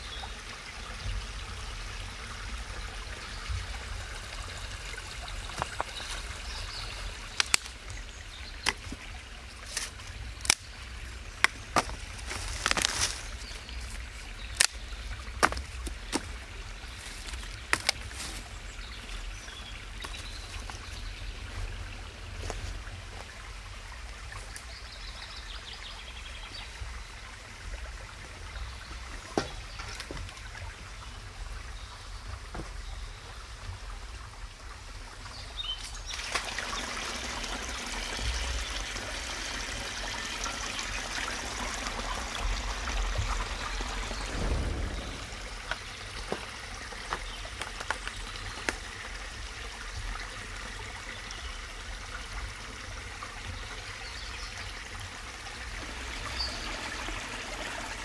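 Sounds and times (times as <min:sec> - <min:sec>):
spring water trickling: 0:00.0 - 0:58.0
dry sticks cracking and snapping: 0:07.3 - 0:08.0, 0:09.6 - 0:10.8, 0:11.4 - 0:13.2, 0:14.5 - 0:14.8, 0:15.4 - 0:16.3, 0:17.0 - 0:18.4.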